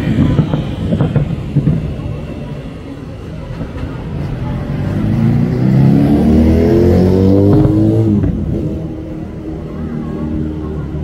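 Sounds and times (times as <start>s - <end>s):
vehicle engine revving: 4.4s - 9.7s.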